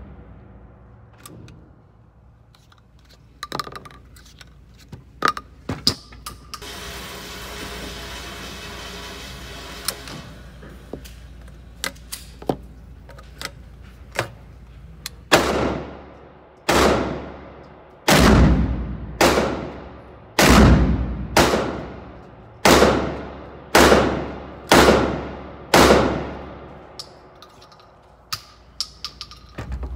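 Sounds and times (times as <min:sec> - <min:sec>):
shotgun shots echoing: 0:15.3 - 0:26.7.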